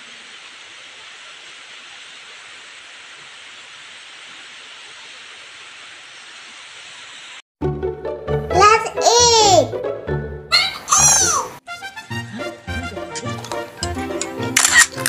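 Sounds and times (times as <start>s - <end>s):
vegetables sizzling in a wok: 0.0s - 7.4s.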